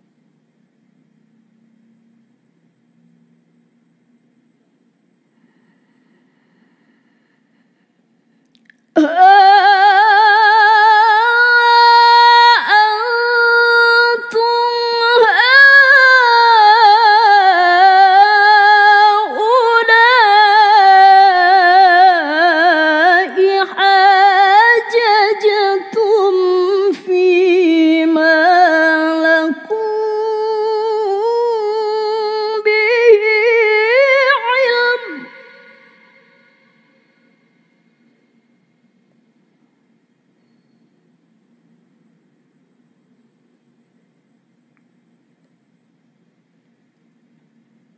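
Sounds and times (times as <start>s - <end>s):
woman reciting melodically: 8.9s - 37.1s.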